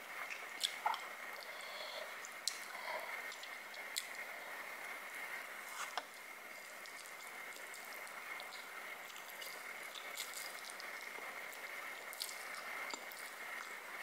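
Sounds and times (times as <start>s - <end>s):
microphone hiss and whine: 0.0s - 14.0s
chewing and slurping noodles: 6.0s - 13.8s.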